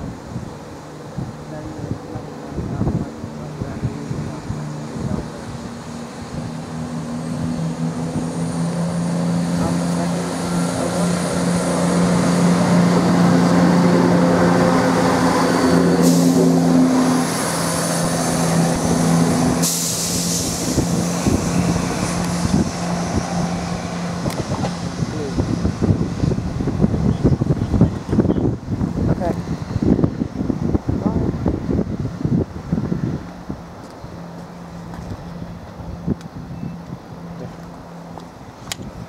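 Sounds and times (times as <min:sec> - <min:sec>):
train diesel engines running: 0:00.0 - 0:39.0
air hissing: 0:15.9 - 0:16.6, 0:19.4 - 0:21.7.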